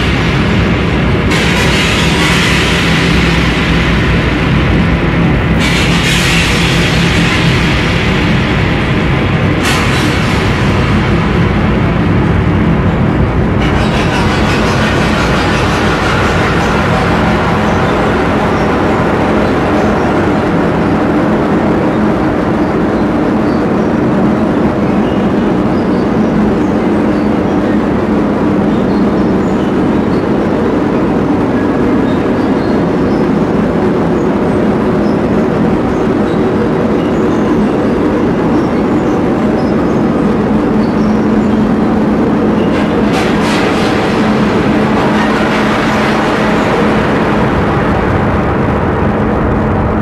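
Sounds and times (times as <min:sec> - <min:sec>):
low hum: 0:00.0 - 0:50.0
train-like rumble: 0:00.0 - 0:50.0.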